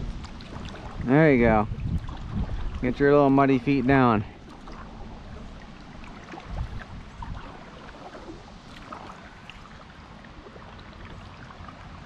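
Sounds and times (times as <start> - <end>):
water lapping around kayak: 0.0 - 12.0
wind rumble on microphone: 0.0 - 12.0
small splashes and clicks: 6.0 - 9.7.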